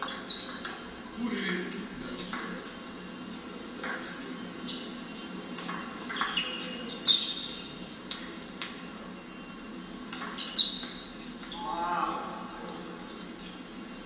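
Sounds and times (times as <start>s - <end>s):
sports shoes squeaking on floor: 0.0s - 0.9s, 1.6s - 2.4s, 3.8s - 7.9s, 10.2s - 11.7s.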